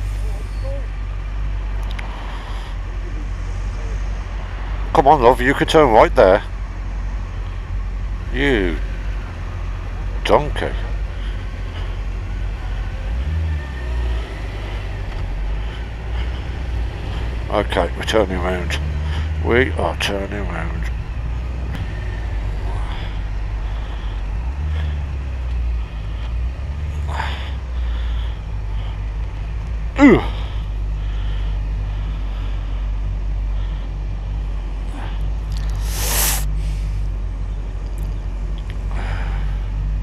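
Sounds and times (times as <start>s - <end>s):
short hiss: 35.6s - 37.0s.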